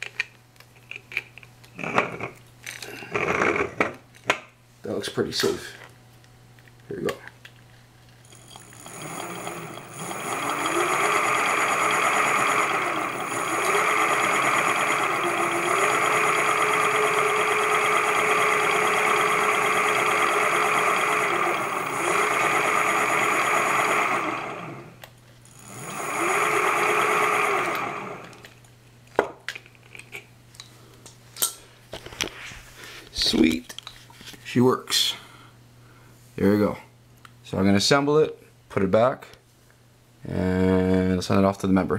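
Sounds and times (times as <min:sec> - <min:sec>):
electric hub motor whining: 0:08.3 - 0:28.5.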